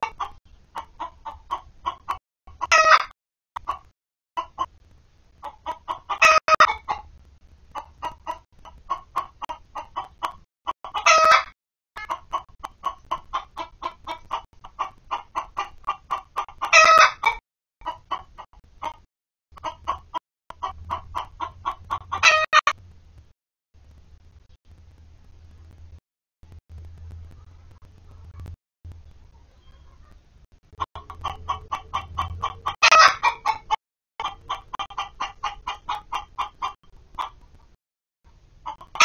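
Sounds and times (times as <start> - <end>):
hen clucking: 0.0 - 4.8, 5.4 - 22.8, 27.3 - 37.6, 38.6 - 39.0
hen squawking: 30.9 - 36.0.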